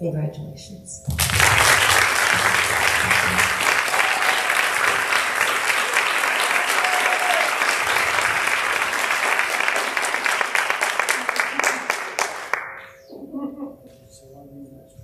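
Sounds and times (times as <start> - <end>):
audience applauding: 1.1 - 13.0.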